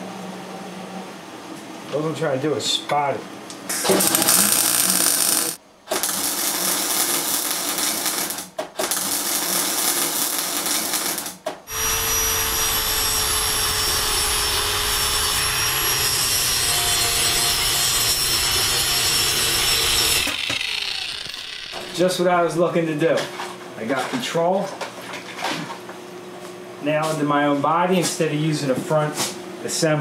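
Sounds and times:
arc welding crackling hiss: 3.7s - 13.2s
angle grinder whining: 3.8s - 5.6s, 11.7s - 22.2s.

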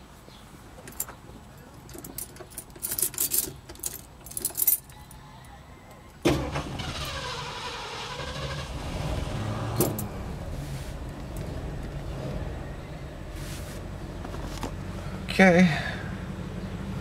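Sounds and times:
keys jangling: 1.9s - 5.0s
car engine idling: 6.2s - 17.0s.

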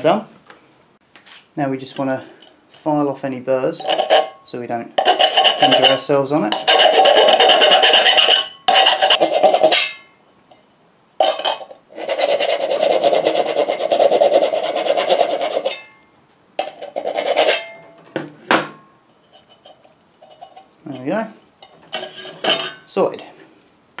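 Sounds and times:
metal file rasping on tin: 3.8s - 4.4s, 5.0s - 10.1s, 11.2s - 15.9s, 16.6s - 17.8s, 19.2s - 22.9s.

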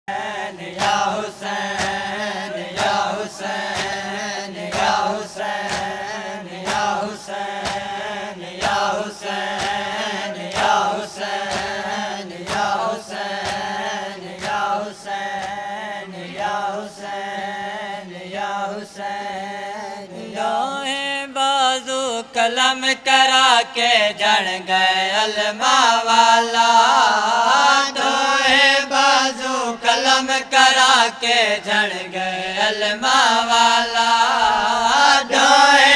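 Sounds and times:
people slapping their chests: 0.1s - 18.0s
voices chanting: 0.1s - 20.7s, 23.8s - 35.9s.

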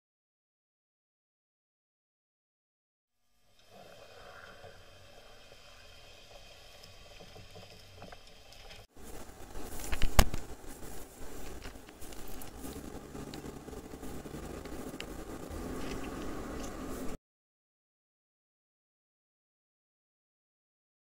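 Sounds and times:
crackling knocks: 6.8s - 16.9s
wind buffeting microphone: 9.0s - 17.2s.

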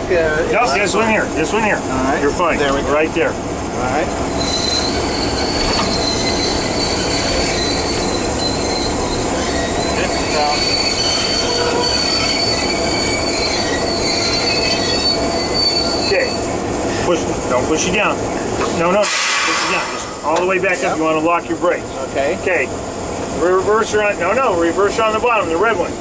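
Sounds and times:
brakes squealing on wheels: 3.9s - 22.1s.

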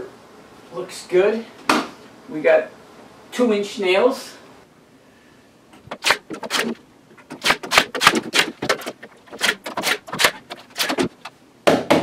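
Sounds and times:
nail gun firing into wood: 5.9s - 11.3s.

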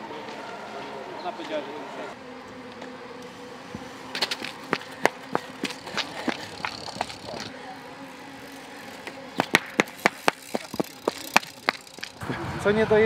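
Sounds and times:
bicycle clicks and knocks on paving: 2.6s - 7.6s, 8.3s - 12.2s.

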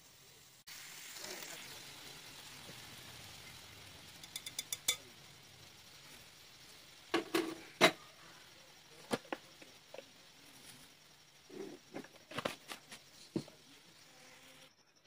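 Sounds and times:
spoon tapping glass bowl: 4.2s - 5.0s.

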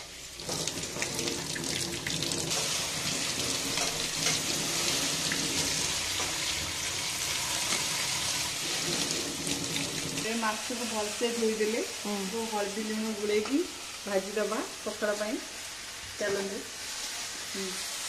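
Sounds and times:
tap water splashing into sink: 0.4s - 2.5s.

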